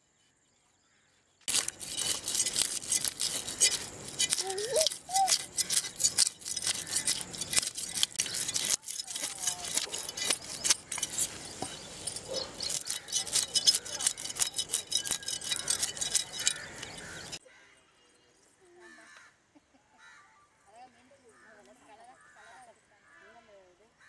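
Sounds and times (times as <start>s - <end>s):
blade scraping fish scales: 1.5s - 17.4s.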